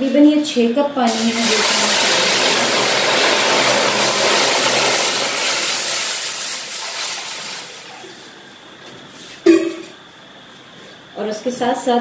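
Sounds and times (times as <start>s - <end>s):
water pouring into a pan: 1.1s - 8.0s.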